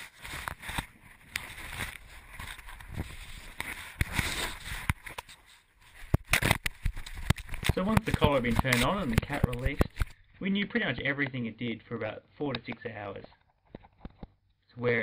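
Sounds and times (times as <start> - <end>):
fur rubbing against camera: 0.0 - 6.1.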